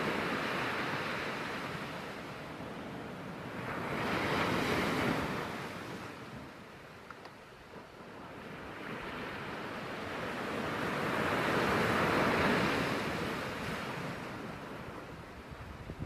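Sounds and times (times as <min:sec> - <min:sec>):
wave breaking on beach: 0:08.2 - 0:15.9.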